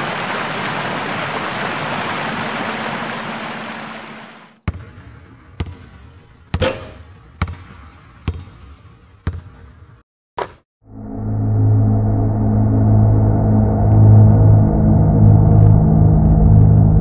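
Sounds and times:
basketball bouncing on asphalt: 0:04.6 - 0:10.0.

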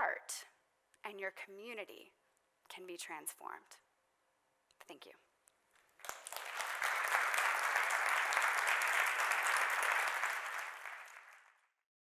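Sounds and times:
audience applauding: 0:05.9 - 0:11.8.

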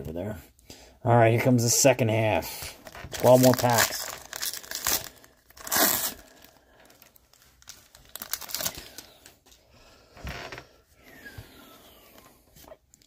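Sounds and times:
cards rustling: 0:02.7 - 0:09.6
foil wrapper crinkling and tearing: 0:02.7 - 0:09.6.

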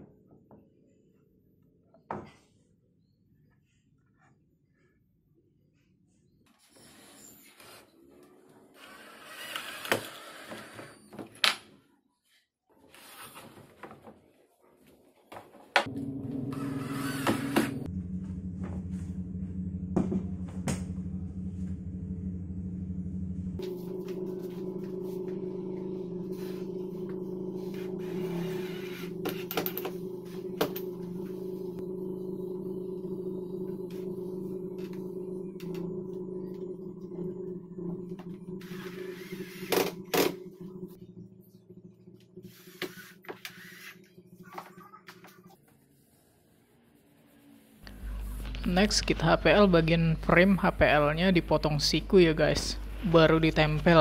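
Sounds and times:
steady low hum: 0:15.8 - 0:45.0, 0:47.0 - 0:54.0.

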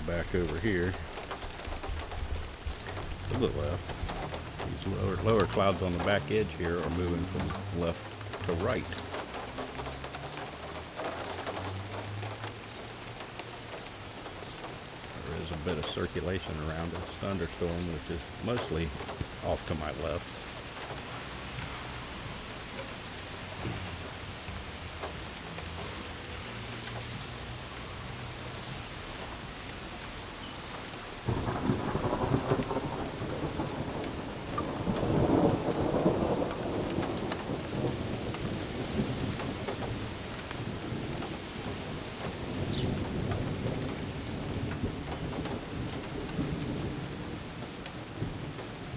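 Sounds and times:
thunder rumbling: 0:00.0 - 0:12.6, 0:31.2 - 0:48.9
steady rain: 0:00.0 - 0:48.9.

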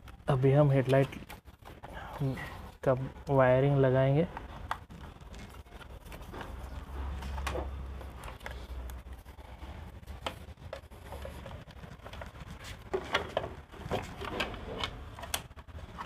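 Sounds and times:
plastic parts clicking and rattling: 0:04.2 - 0:09.3, 0:09.9 - 0:16.0.

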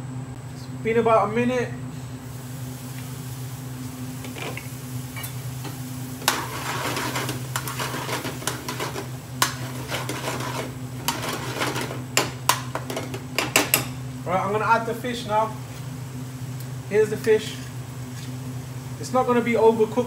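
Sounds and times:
sauce sizzling in a pan: 0:02.2 - 0:14.2, 0:15.6 - 0:20.0
metal ladle scraping a pan: 0:06.2 - 0:13.1.

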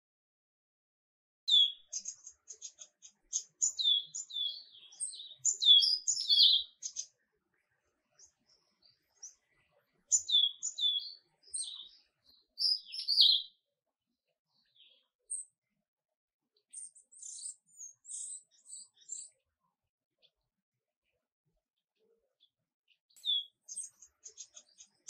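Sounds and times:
songbird chirping and whistling: 0:01.5 - 0:07.1, 0:10.1 - 0:13.6, 0:16.7 - 0:19.4, 0:23.2 - 0:25.0.

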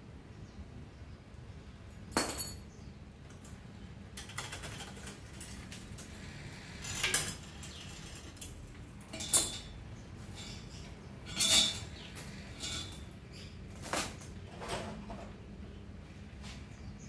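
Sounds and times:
metal tools clinking: 0:02.2 - 0:02.7, 0:06.8 - 0:14.8.

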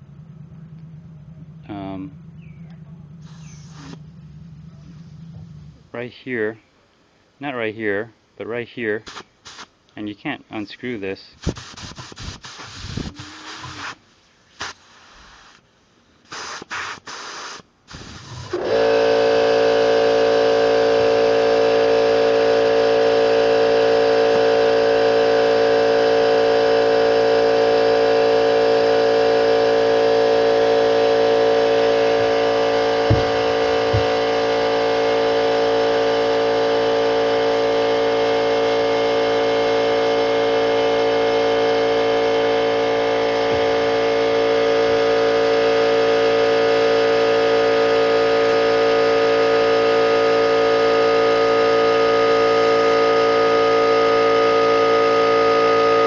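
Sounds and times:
air compressor running: 0:00.0 - 0:06.0, 0:11.3 - 0:15.6, 0:16.2 - 0:56.0
short spurts of air hiss: 0:03.2 - 0:04.1, 0:09.0 - 0:09.8, 0:11.3 - 0:18.8.

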